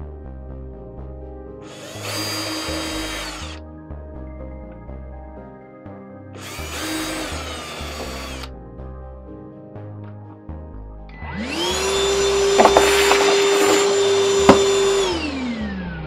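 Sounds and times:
background music: 0.0s - 16.0s
power drill drilling into wood: 1.7s - 3.6s, 12.4s - 15.1s.

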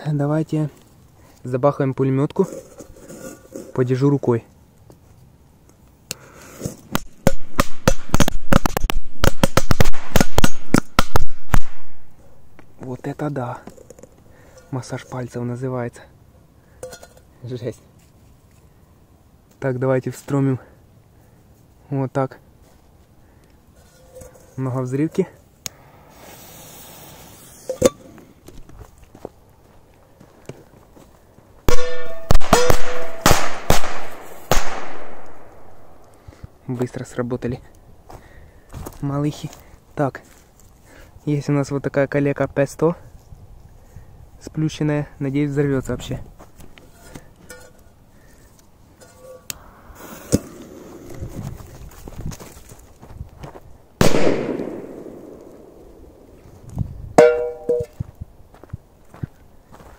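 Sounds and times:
firecrackers banging under bowl: 7.0s - 11.8s
fuse hiss: 25.7s - 28.2s
metal bowl ringing: 57.2s - 58.0s.

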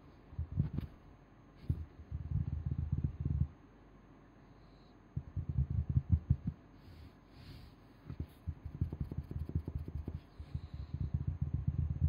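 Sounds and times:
fingers tapping on carpet: 5.2s - 6.6s, 8.0s - 12.0s.

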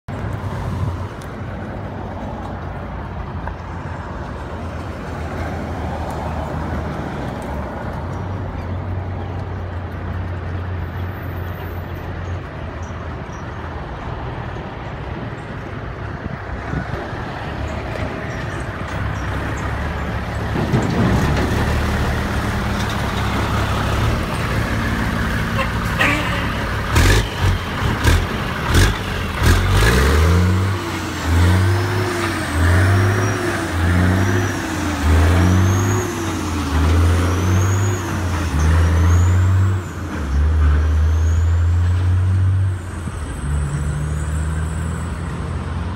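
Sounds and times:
diesel truck engine humming: 18.0s - 40.6s.

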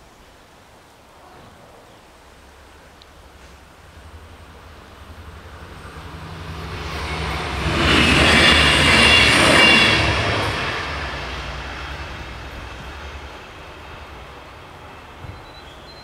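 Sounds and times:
vehicle passing by: 4.1s - 13.6s.

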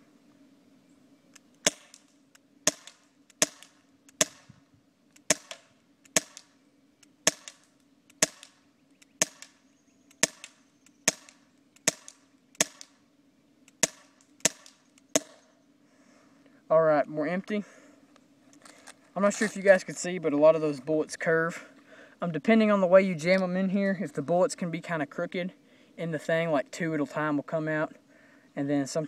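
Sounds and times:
air pistol shots: 1.6s - 4.5s, 5.2s - 6.6s, 7.2s - 8.6s, 9.2s - 9.6s, 10.2s - 13.0s, 13.7s - 15.4s.

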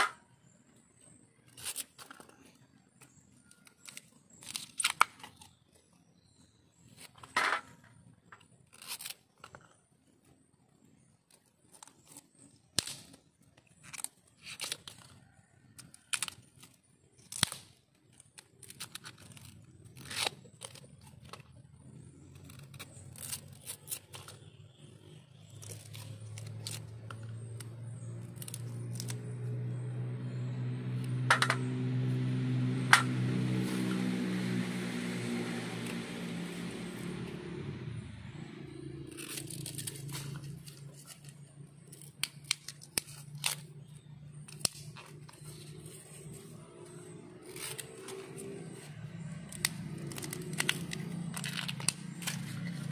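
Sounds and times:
knife cutting bamboo shoots: 3.0s - 5.6s, 11.7s - 21.5s, 22.1s - 52.9s
engine hum passing by: 19.3s - 52.9s.

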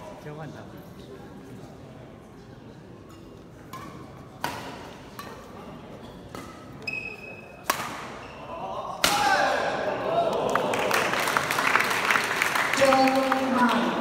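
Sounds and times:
rackets hitting shuttlecock: 3.6s - 6.9s, 7.6s - 8.2s
high shoe squeak: 6.0s - 7.6s.

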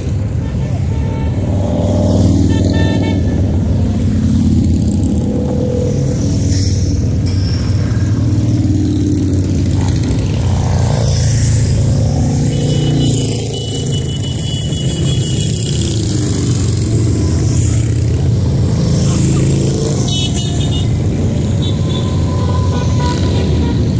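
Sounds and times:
motorcycle engines revving: 0.0s - 23.9s.

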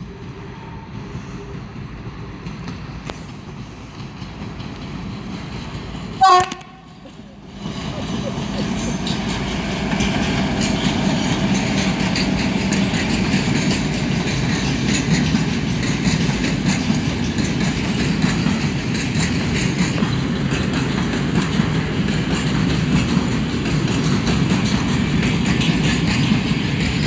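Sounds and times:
steel train wheels rolling on rails: 0.0s - 27.0s.

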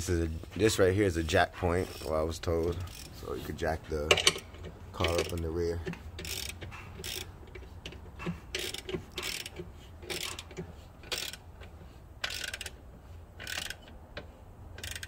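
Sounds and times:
socket ratchet clicking: 4.1s - 11.5s, 12.2s - 12.8s, 13.4s - 15.0s.

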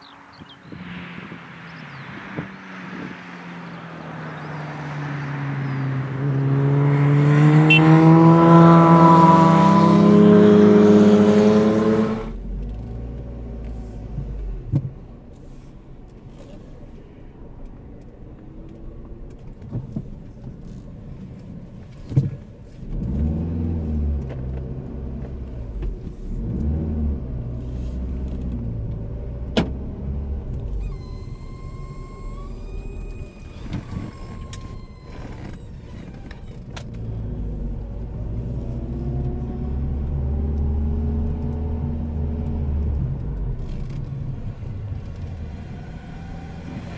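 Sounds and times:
high whining tone: 0.0s - 12.4s, 30.7s - 36.5s
car engine and road noise: 0.0s - 46.9s.

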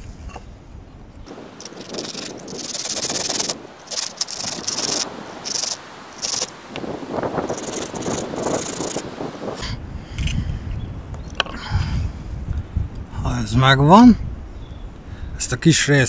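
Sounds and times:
hand saw cutting wood: 1.4s - 6.5s.

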